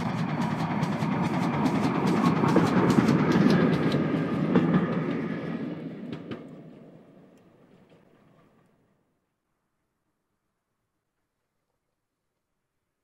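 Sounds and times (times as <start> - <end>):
wheels clicking on rails: 0.0 - 8.8
steam train rumble: 0.0 - 9.0.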